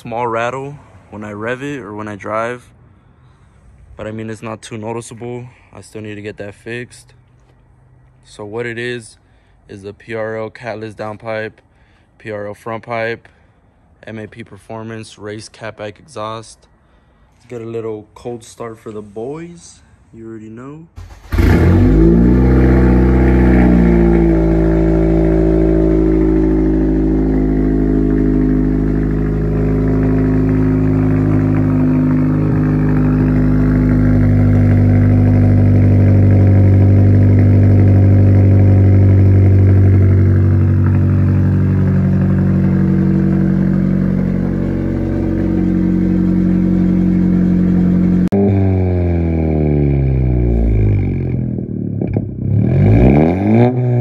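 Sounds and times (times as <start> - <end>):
car engine starting and idling: 20.9 - 54.0.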